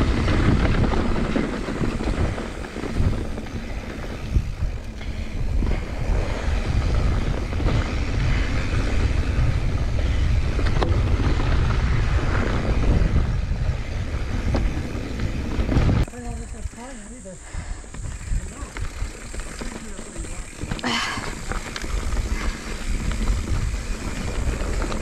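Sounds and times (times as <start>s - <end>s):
bike clicks and rattles: 0.0s - 25.0s
tyres rumbling on dirt: 0.0s - 25.0s
wind buffeting microphone: 0.0s - 25.0s.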